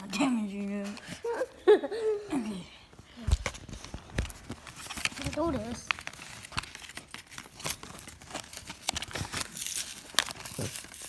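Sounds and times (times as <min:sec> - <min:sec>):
sharp plastic crackle: 0:03.2 - 0:11.0
plastic blister pack tearing: 0:04.1 - 0:11.0.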